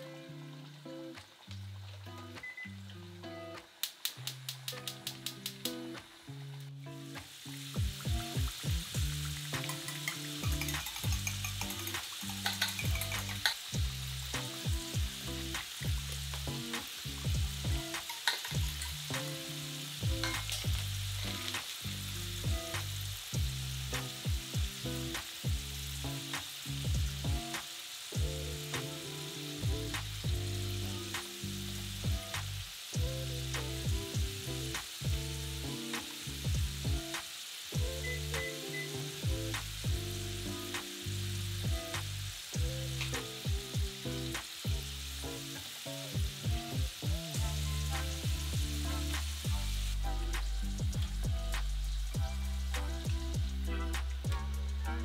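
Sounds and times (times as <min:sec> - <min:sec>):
oil sizzling: 0:00.0 - 0:55.0
soft background music: 0:04.7 - 0:37.2, 0:37.8 - 0:55.0
whisk scraping a metal bowl: 0:09.6 - 0:13.5.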